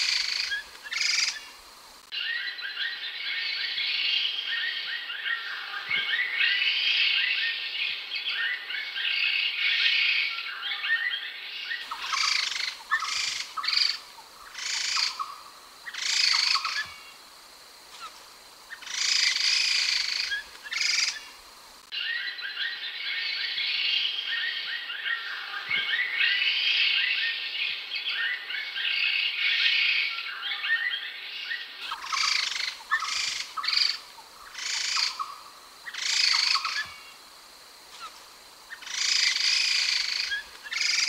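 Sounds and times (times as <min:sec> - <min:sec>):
birds singing whistled chattering phrases: 0:10.5 - 0:17.0, 0:18.7 - 0:21.3, 0:30.3 - 0:37.2, 0:38.0 - 0:41.0.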